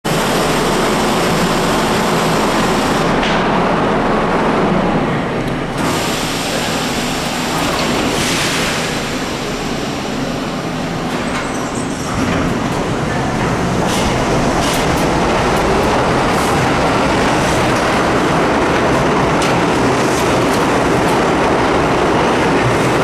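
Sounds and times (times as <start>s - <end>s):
subway train idling hum: 0.1s - 23.0s
train doors hissing closed: 5.7s - 21.4s.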